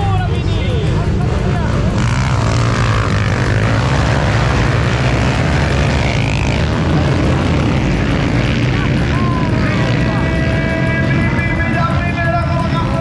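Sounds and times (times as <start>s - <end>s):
dirt bike engines revving: 0.0s - 13.0s.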